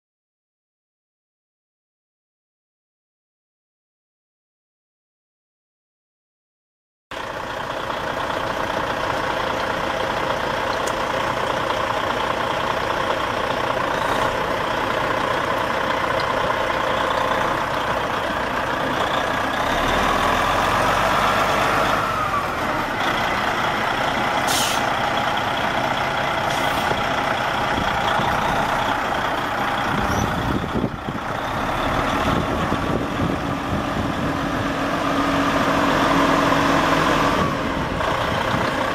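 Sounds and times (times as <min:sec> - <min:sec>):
diesel truck engine running: 0:07.1 - 0:38.9
air hiss: 0:24.5 - 0:24.9.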